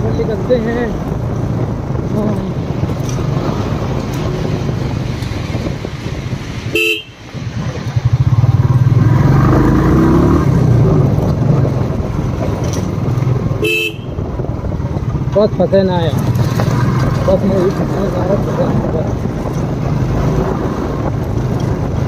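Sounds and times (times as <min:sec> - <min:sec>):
vehicle horns honking: 0:06.7 - 0:07.3, 0:13.6 - 0:14.3.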